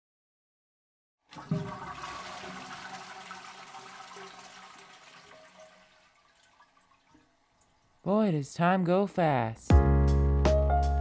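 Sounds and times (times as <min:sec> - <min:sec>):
toilet flushing: 0:01.2 - 0:08.0.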